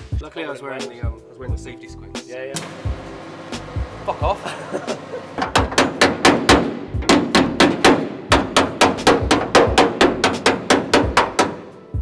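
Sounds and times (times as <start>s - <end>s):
hammer blows on sheet steel: 5.4s - 11.8s.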